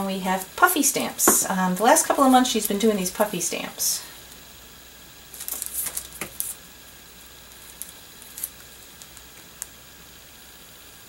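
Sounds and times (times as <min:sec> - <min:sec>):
plastic sleeve crinkling: 0:05.3 - 0:06.6, 0:07.4 - 0:09.7.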